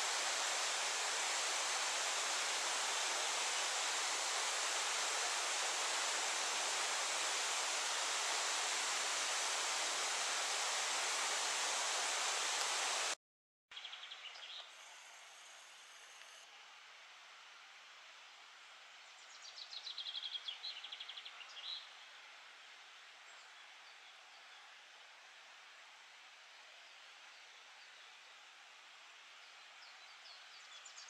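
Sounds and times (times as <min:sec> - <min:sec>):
rushing outdoor noise: 0:00.0 - 0:13.2
quiet outdoor ambience: 0:00.0 - 0:31.0.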